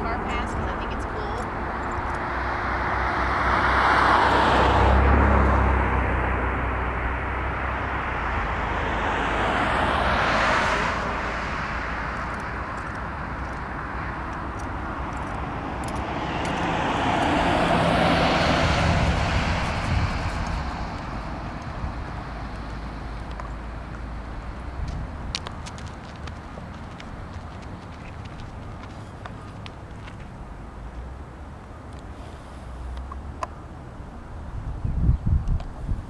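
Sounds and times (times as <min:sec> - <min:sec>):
road vehicles passing: 0:00.0 - 0:36.0.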